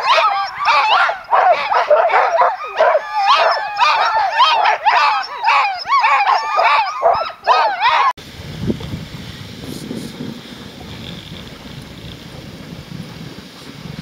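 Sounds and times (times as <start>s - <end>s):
sled dogs barking and howling: 0.0s - 8.2s.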